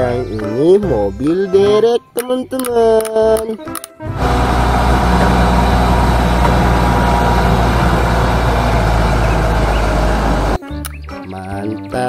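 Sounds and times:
diesel engine droning: 4.2 - 10.6.

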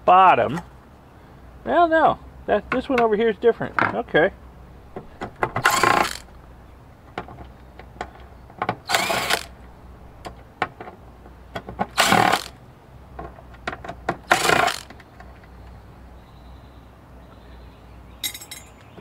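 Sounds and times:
cordless drill whirring: 5.6 - 6.4, 8.9 - 9.6, 12.0 - 12.5, 14.3 - 14.9.

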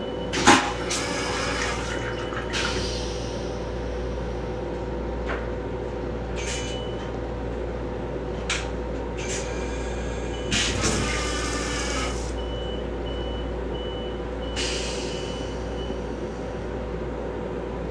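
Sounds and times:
toilet flush hisses: 0.6 - 3.4.

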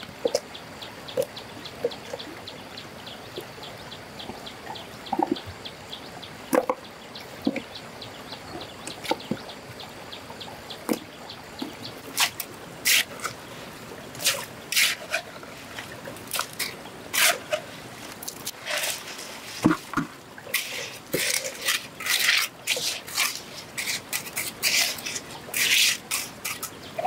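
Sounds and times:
stream water trickling: 0.0 - 27.0
water splashes: 10.8 - 27.0
stones knocking and scraping: 18.1 - 26.7.

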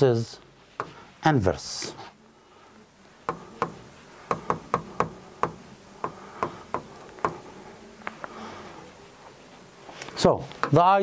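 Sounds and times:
pen tapping on glass screen: 3.3 - 7.4.

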